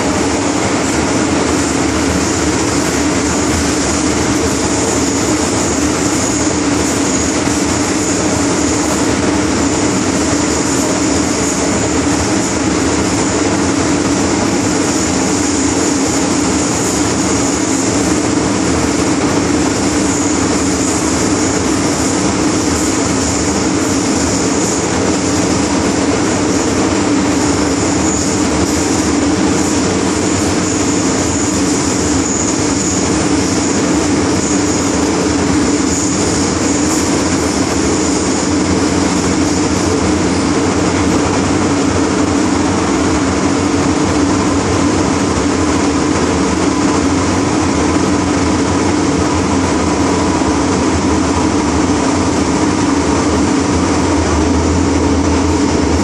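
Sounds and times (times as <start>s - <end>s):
thin high whine: 0.0s - 56.0s.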